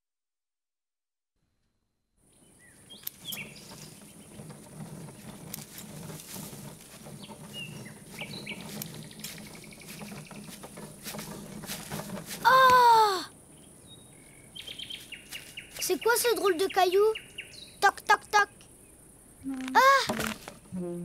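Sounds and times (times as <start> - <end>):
bird chirps: 2.3 - 4.3, 13.5 - 19.6
small clicks: 3.0 - 3.4.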